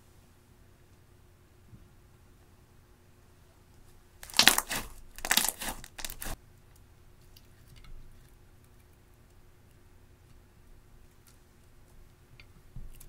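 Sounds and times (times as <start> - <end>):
fingers crumbling eyeshadow: 4.2 - 6.4
slime crackling: 4.2 - 6.4.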